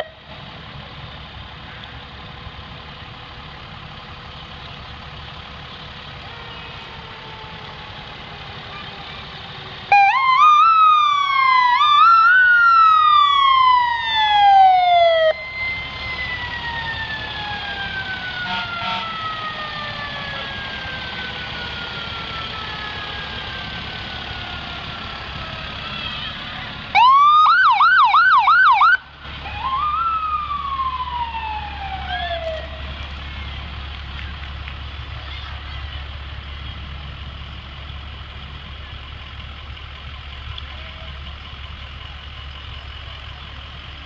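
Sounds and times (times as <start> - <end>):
electronic siren wail: 9.9 - 24.8, 27.0 - 32.8
fast siren yelp: 9.9 - 24.8, 25.8 - 32.8.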